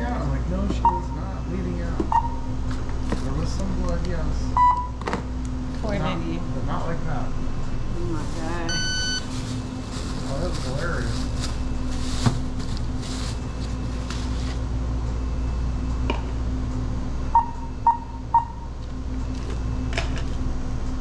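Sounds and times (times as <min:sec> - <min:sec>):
low hum of store checkout: 0:00.0 - 0:21.0
short electronic beeps: 0:00.8 - 0:01.2, 0:02.1 - 0:02.5, 0:04.5 - 0:05.0, 0:08.6 - 0:09.3, 0:17.3 - 0:18.7
plastic bag rustling: 0:08.1 - 0:14.6.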